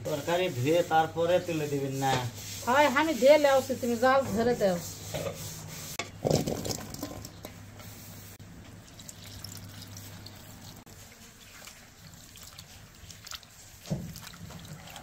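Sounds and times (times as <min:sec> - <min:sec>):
water pouring into metal bowl: 0:08.8 - 0:15.0
thump: 0:13.9 - 0:14.2.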